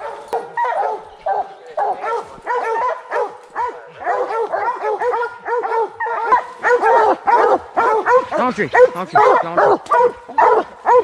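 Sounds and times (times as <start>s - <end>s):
dogs barking: 0.0s - 11.0s.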